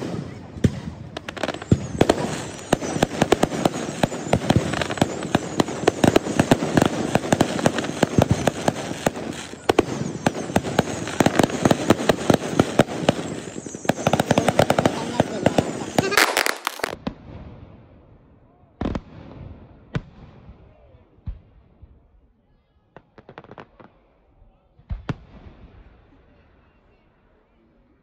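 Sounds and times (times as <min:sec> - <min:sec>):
fireworks bangs and crackles: 0:00.0 - 0:22.1, 0:22.9 - 0:24.2, 0:24.8 - 0:26.5.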